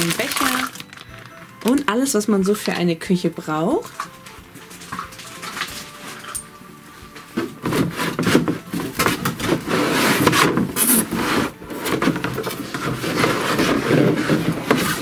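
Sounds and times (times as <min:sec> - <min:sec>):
cardboard rubbing and scraping: 0:07.4 - 0:15.0.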